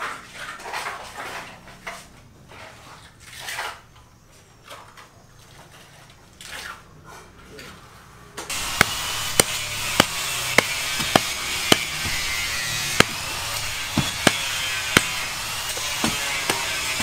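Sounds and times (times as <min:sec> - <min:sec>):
hoe chopping cement mortar: 0:08.5 - 0:17.0.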